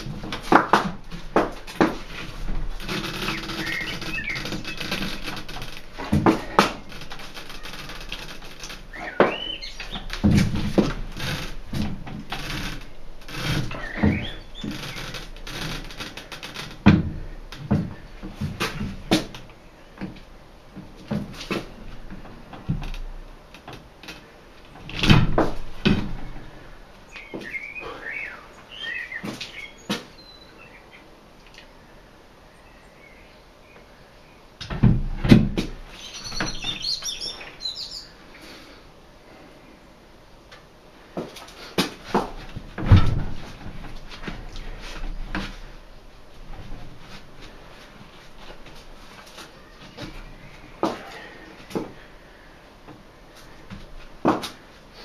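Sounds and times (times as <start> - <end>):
heavy thumps: 0.0 - 19.4, 24.8 - 26.6, 41.2 - 49.1
rubber squeaking against rim: 1.9 - 16.8, 35.9 - 37.9.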